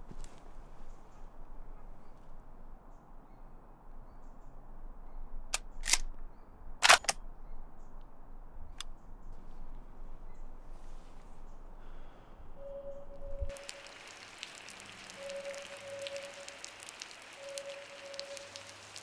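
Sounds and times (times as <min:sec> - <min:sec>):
rifle mechanical clicks: 0:05.5 - 0:06.2
outdoor hiss: 0:13.2 - 0:19.0.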